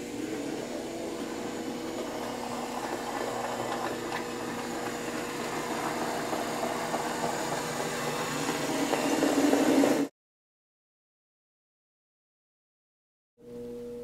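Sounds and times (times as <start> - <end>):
model train motor whirring: 0.2 - 10.1.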